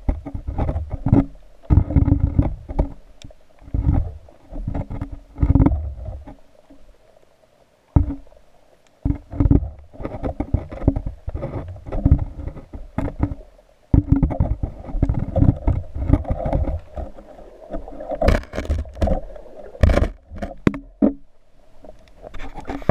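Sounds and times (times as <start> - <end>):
underwater rumbling and sloshing: 0.0 - 22.9
sharp clicks or knocks: 18.2 - 19.2, 19.8 - 21.2.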